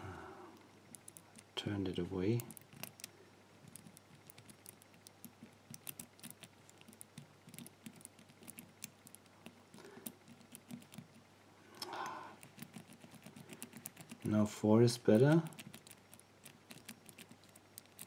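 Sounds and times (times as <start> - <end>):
padlock number wheels clicking: 15.1 - 18.0.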